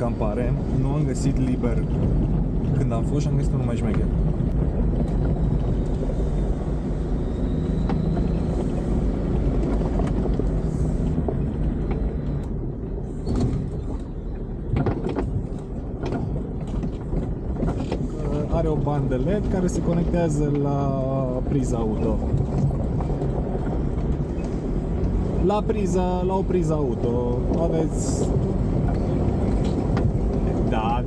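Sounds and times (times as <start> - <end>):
engine and tyres rumbling: 0.0 - 31.0
knocks and rattles: 14.7 - 20.6.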